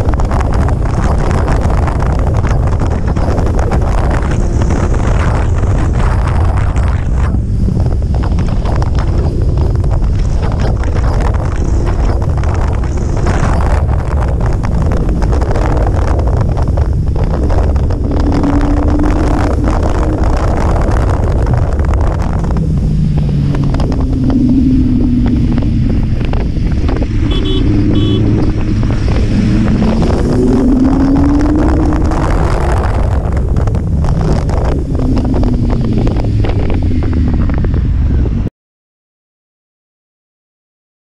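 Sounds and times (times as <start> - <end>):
motorcycle engine at speed: 0.0 - 38.5
wind buffeting on microphone: 0.0 - 38.5.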